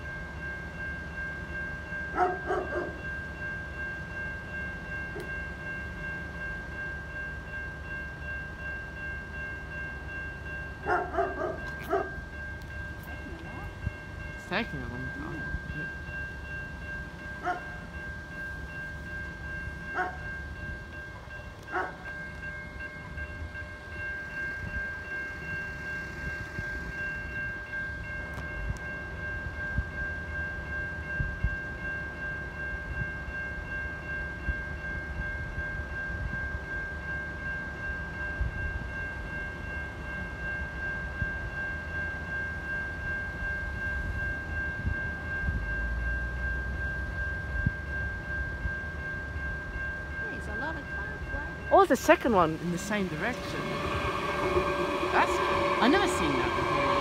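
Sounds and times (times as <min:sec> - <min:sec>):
level crossing bell ringing: 0:00.0 - 0:26.1, 0:48.1 - 0:57.0
low rumble: 0:52.3 - 0:57.0.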